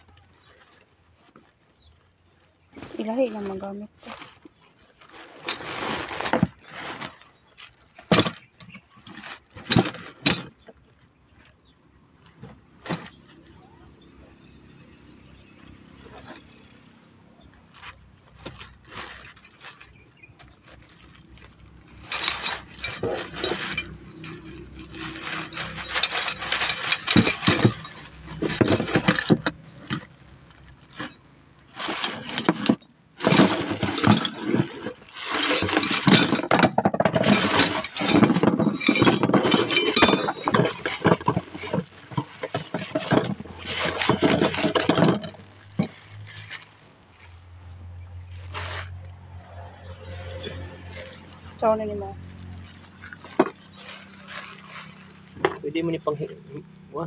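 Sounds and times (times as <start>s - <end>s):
metal hand tools clattering: 20.9s - 30.2s, 31.8s - 46.7s, 52.7s - 55.9s.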